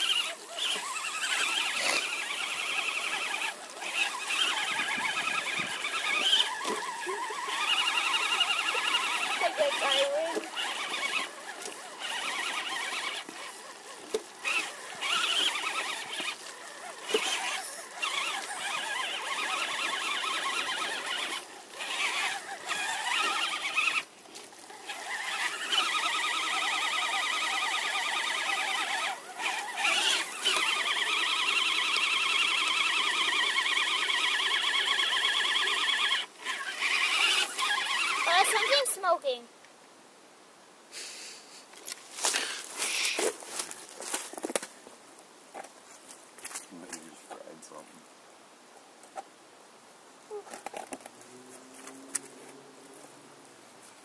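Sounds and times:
electric motors whining under load: 0.0s - 39.0s.

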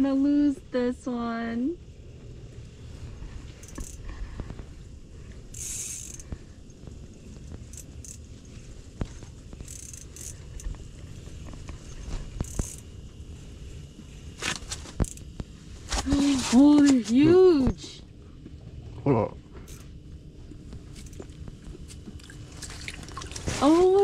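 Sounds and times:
fishing reel clicking and whirring: 3.4s - 4.2s, 5.3s - 13.1s, 14.4s - 15.4s, 19.6s - 20.0s, 20.8s - 22.0s.

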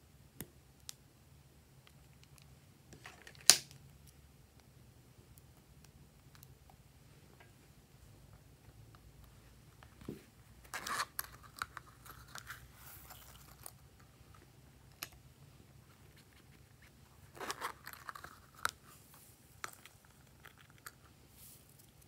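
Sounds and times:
crinkly rustling: 10.2s - 15.1s, 15.7s - 22.0s.

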